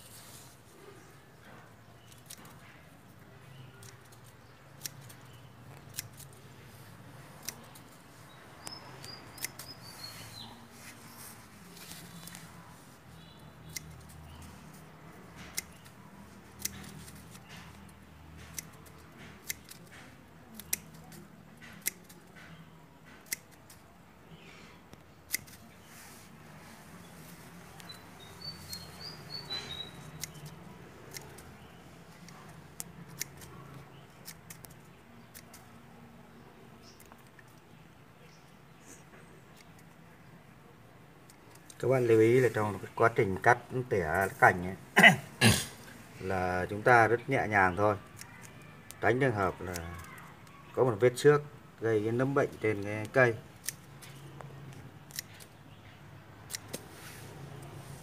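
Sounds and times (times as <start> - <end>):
pruning shears snipping: 2.0 - 2.7, 3.6 - 12.6, 13.4 - 23.9, 25.2 - 25.8, 27.2 - 35.8, 47.7 - 50.5, 52.6 - 55.6, 56.4 - 57.0.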